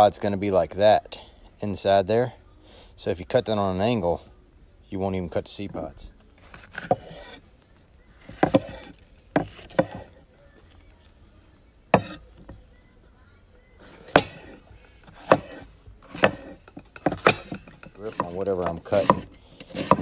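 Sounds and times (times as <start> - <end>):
knife chopping on wooden board: 6.7 - 7.4, 8.3 - 10.1, 12.0 - 12.2, 14.0 - 20.0.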